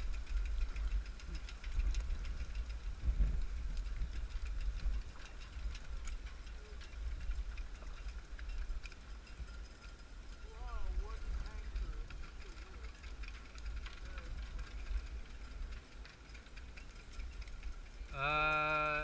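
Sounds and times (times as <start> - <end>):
low uneven rumble: 0.0 - 19.0.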